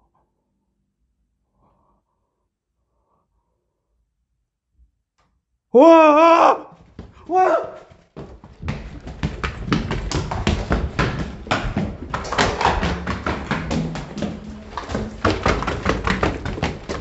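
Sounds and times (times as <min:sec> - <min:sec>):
running footsteps on hard floor: 0:06.7 - 0:17.0.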